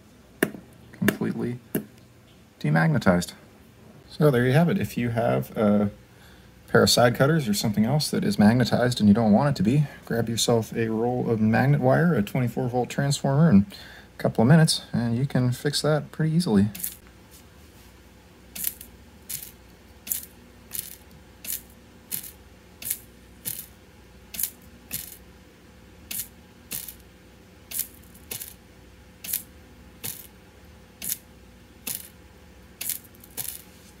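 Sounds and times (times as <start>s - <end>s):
faint steady hum: 0.0s - 34.0s
sharp clicks of steel pins: 16.7s - 17.0s, 18.6s - 25.2s, 26.1s - 27.0s, 27.7s - 28.6s, 29.2s - 30.4s, 31.0s - 32.2s, 32.8s - 33.7s.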